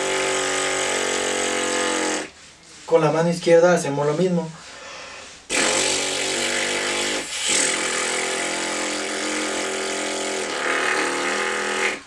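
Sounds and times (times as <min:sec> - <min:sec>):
buzzing lip trill: 0:00.0 - 0:02.4, 0:05.5 - 0:12.0.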